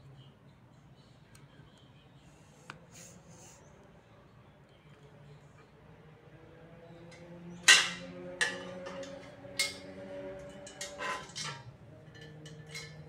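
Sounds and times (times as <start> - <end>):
metal tubes clanking: 7.1 - 13.0
metal frame ringing: 7.6 - 13.0
metal frame rattling: 7.7 - 13.0.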